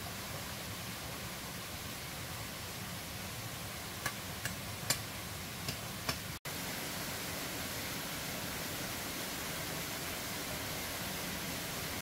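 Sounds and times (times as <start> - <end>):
waterfall rushing: 6.5 - 12.0.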